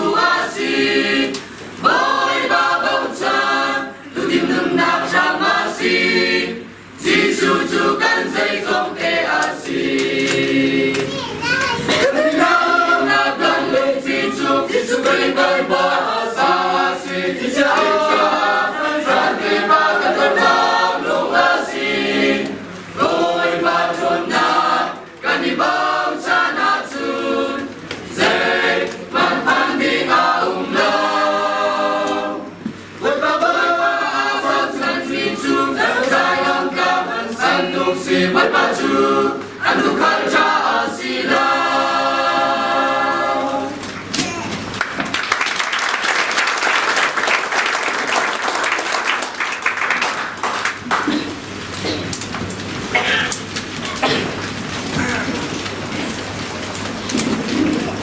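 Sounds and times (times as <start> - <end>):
mixed choir singing unaccompanied: 0.0 - 11.1, 11.9 - 43.9.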